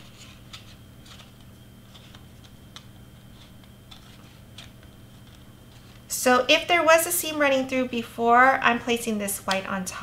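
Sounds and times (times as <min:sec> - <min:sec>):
cardstock ticking and rustling: 0:00.0 - 0:06.0
steady low hum: 0:00.0 - 0:10.0.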